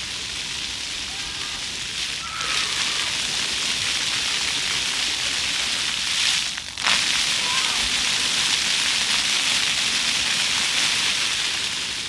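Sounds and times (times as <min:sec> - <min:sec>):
fountain water splashing on stone: 0:00.0 - 0:12.0.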